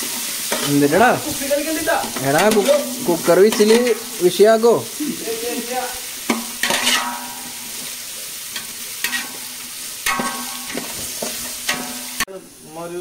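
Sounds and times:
onions and spices sizzling in oil: 0.0s - 13.0s
metal spatula scraping pot: 2.0s - 4.2s, 6.3s - 7.9s, 8.5s - 12.3s.

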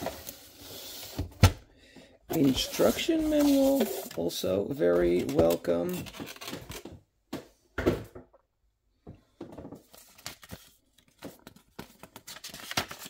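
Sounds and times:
paper rustling: 2.3s - 6.8s, 9.8s - 13.0s.

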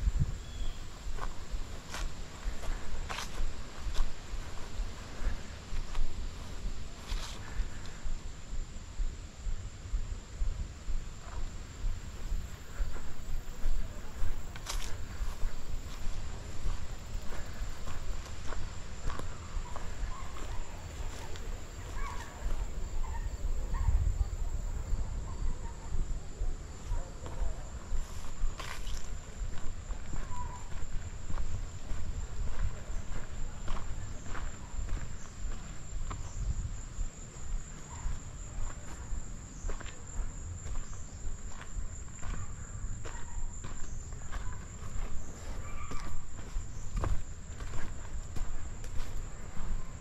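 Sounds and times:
low rumble of microphone movement: 0.0s - 39.8s
footsteps on woodland trail: 0.0s - 50.0s
insects droning: 0.0s - 50.0s
faint bird chirps: 0.3s - 1.4s, 30.2s - 30.9s, 42.3s - 47.0s.

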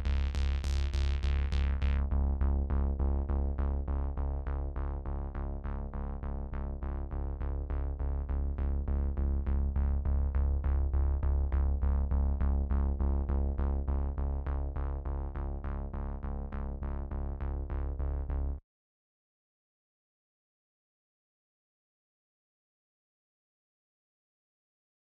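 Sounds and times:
held low bass: 0.0s - 18.6s.

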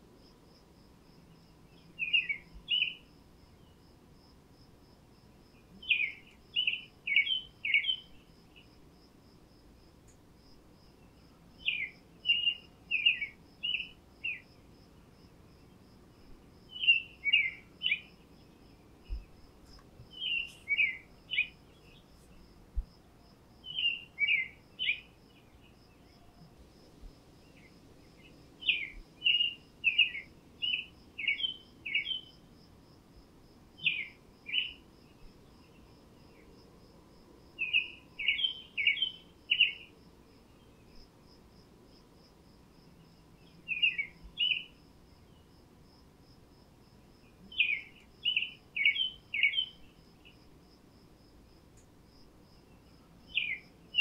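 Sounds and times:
songbird singing: 0.0s - 9.0s, 9.7s - 32.6s, 33.8s - 51.0s, 51.7s - 54.0s
insect chirping high-pitched: 37.6s - 40.0s, 47.1s - 51.3s.

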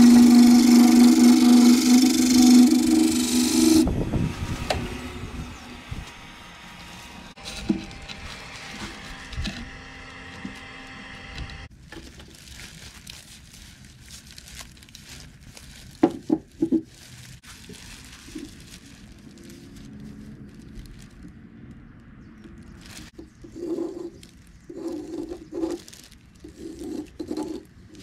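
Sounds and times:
wood lathe humming: 0.0s - 11.7s
rustling of plastic and gloves: 6.6s - 9.8s, 11.7s - 28.0s.

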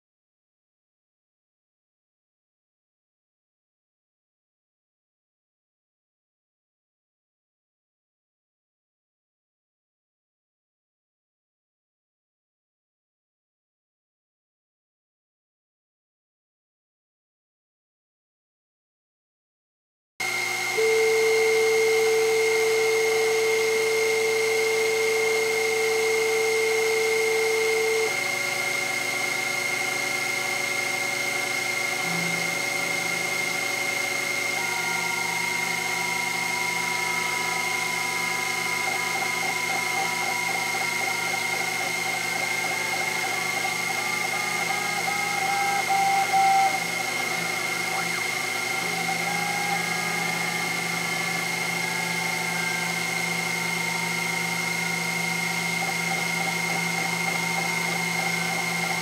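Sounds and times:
axis drive motor tones: 20.2s - 59.0s
mill spindle whine: 20.2s - 59.0s.

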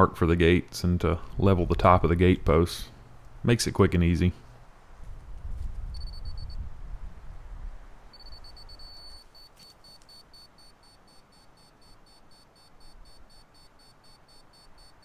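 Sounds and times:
rapid high-pitched beeps: 6.0s - 6.6s, 8.2s - 15.0s.

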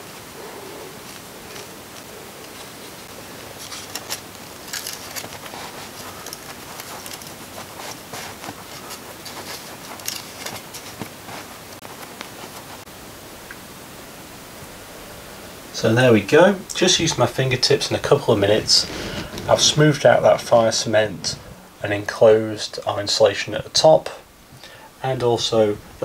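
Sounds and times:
steady hiss: 0.0s - 26.0s
fingertips scraping wet cement: 3.5s - 12.8s.

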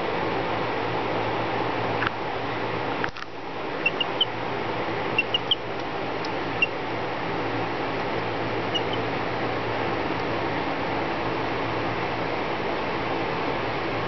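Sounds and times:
background hum and hiss: 0.0s - 14.0s
chick peeping: 3.8s - 4.4s, 5.1s - 6.8s, 8.6s - 9.1s.

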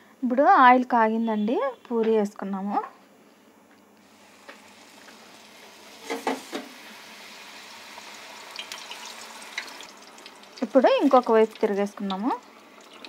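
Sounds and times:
dough sizzling in hot oil: 4.0s - 13.0s.

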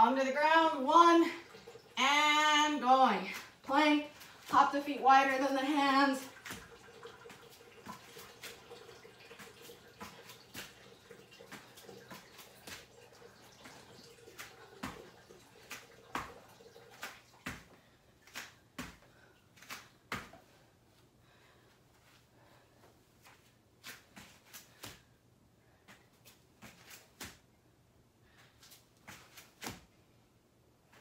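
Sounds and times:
bare feet landing on mat: 17.0s - 20.5s, 29.1s - 29.9s.

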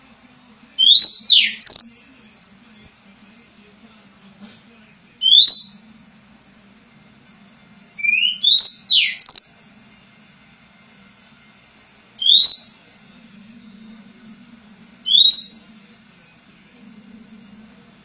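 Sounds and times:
bird rising whistled calls: 8.0s - 9.6s, 15.0s - 15.7s.

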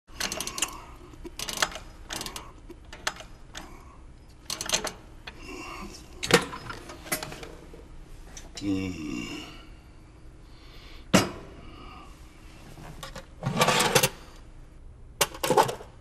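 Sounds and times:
safe combination dial clicking: 1.4s - 3.7s.

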